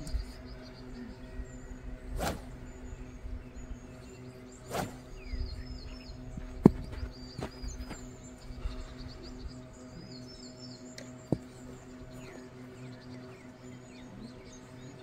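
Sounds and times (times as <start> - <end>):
faint bird chirps: 0.0 - 15.0
golf club swishing: 2.1 - 2.6, 4.6 - 5.1.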